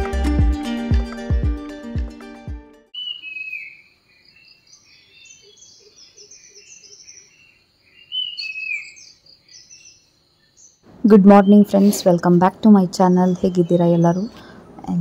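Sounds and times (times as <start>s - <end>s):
background music: 0.0s - 2.9s
birds chirping and calling: 3.0s - 14.6s.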